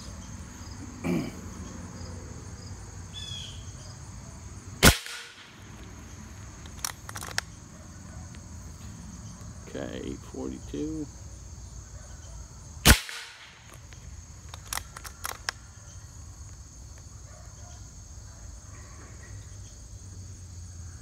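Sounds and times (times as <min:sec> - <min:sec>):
high insect buzz: 0:00.0 - 0:07.5
air rifle shot: 0:04.8 - 0:05.6, 0:12.8 - 0:13.6.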